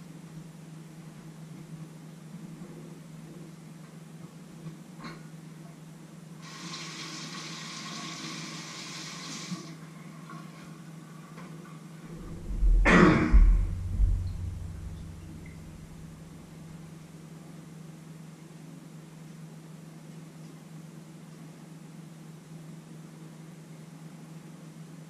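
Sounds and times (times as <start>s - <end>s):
low hum: 12.0s - 17.2s.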